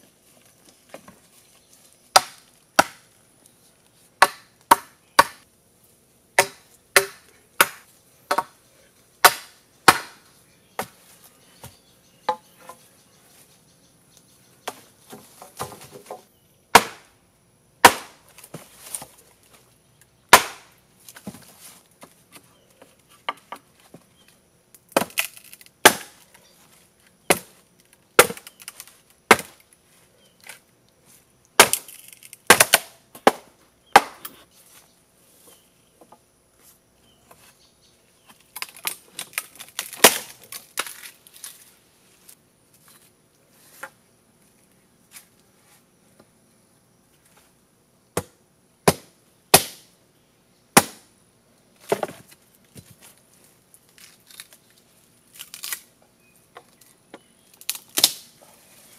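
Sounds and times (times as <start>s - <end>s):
machete chopping bamboo: 2.1s - 3.1s, 4.2s - 5.4s, 6.4s - 8.6s, 9.2s - 10.2s, 14.7s - 17.1s, 17.8s - 19.1s, 20.3s - 21.4s, 24.9s - 26.2s, 27.3s - 27.6s, 28.2s - 29.6s, 31.6s - 34.4s, 38.6s - 41.1s, 48.2s - 49.9s, 50.8s - 51.1s, 57.6s - 58.3s
bamboo cracking and splintering: 24.7s - 26.4s, 27.0s - 29.8s, 31.5s - 34.2s, 38.3s - 41.7s, 51.8s - 56.0s, 56.6s - 58.4s.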